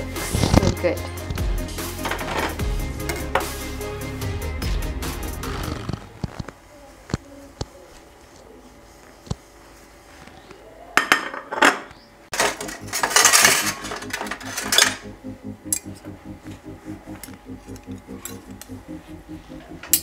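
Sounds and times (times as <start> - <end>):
plate and cutlery clattering: 2.0 - 3.4, 11.0 - 15.0.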